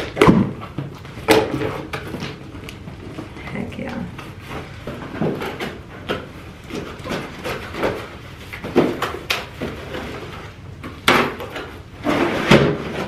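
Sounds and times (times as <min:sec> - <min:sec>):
cardboard box scraping and crinkling: 0:12.0 - 0:13.0.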